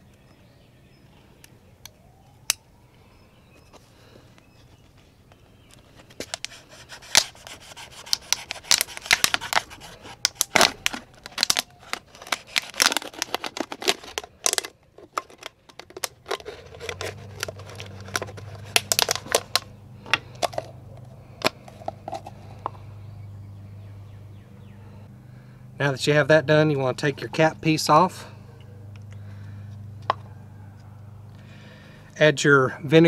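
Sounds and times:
low steady hum: 0:00.0 - 0:33.0
knife sawing plastic bottle: 0:06.2 - 0:14.6, 0:15.2 - 0:20.7.

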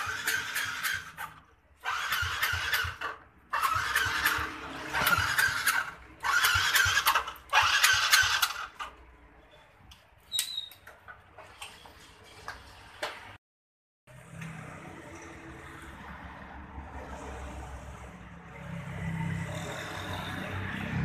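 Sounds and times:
motorcycle electric starter cranking: 0:00.0 - 0:09.0.

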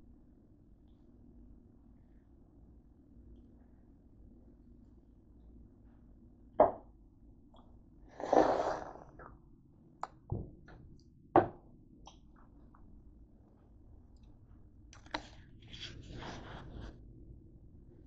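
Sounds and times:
rustling scrape: 0:08.1 - 0:09.2, 0:15.6 - 0:17.0.

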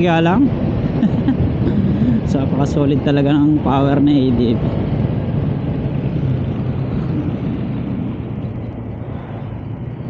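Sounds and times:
wind and road noise: 0:00.0 - 0:10.0
scooter engine droning: 0:04.8 - 0:10.0.

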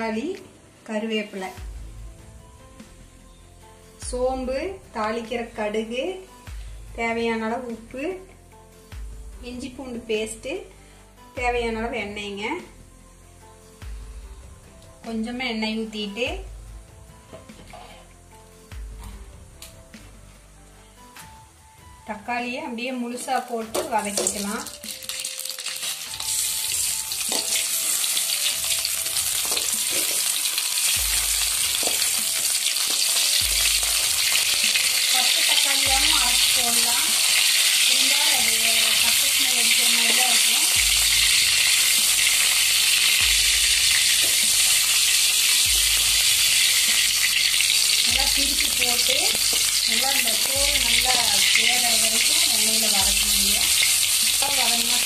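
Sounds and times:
tomatoes sizzling in hot oil: 0:22.4 - 0:55.0.

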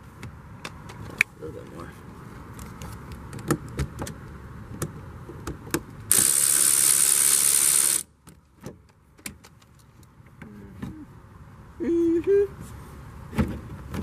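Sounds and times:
cordless drill running: 0:06.1 - 0:08.0.

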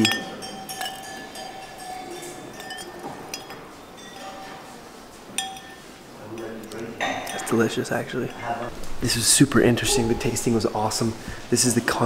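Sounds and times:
glassware clinking: 0:00.0 - 0:08.8.

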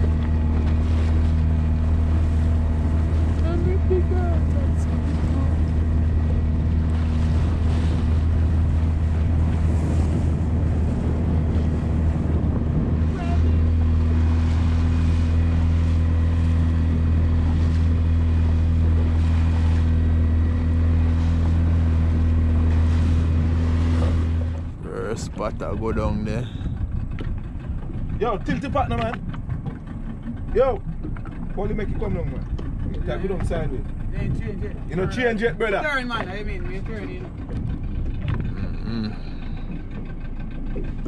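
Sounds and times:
boat motor running: 0:00.0 - 0:41.0
water rushing past hull: 0:00.0 - 0:41.0
wind: 0:00.0 - 0:41.0.

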